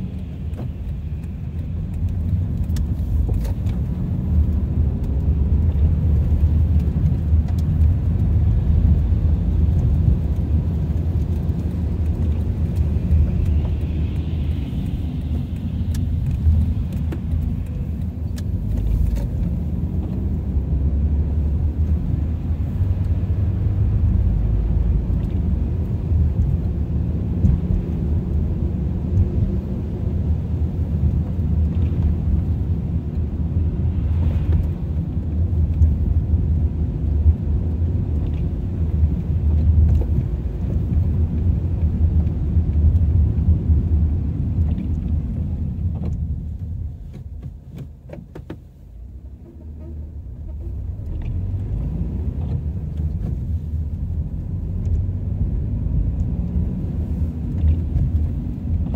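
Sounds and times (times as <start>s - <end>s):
car road and engine rumble: 0.0s - 58.9s.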